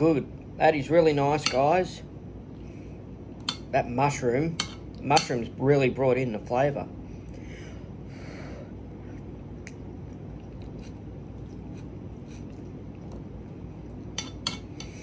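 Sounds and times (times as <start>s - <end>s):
man chewing food: 8.7s - 15.0s
metal spoon clinking ceramic bowl: 14.2s - 14.9s.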